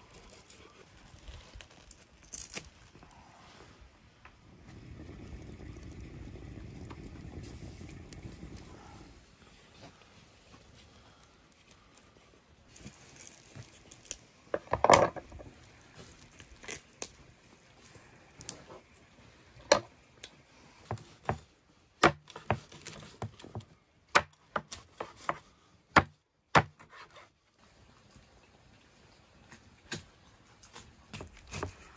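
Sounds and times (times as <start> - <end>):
knife chopping on wooden board: 26.0 - 27.0.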